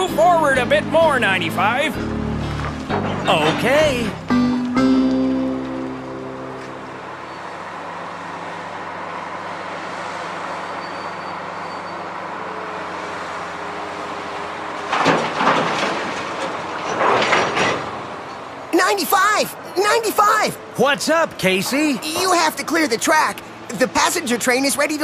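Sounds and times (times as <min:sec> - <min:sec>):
train rolling rumble: 0:00.0 - 0:24.4
rattling noise: 0:00.6 - 0:07.0, 0:14.8 - 0:18.5.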